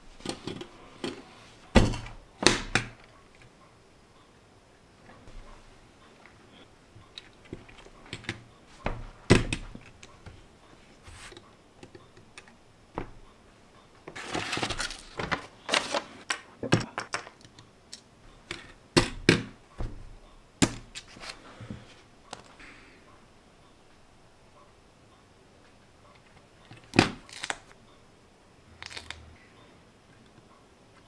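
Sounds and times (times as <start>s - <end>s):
paper rustle: 14.2s - 16.3s
plastic pieces clicking on table: 14.4s - 19.5s, 28.8s - 29.2s.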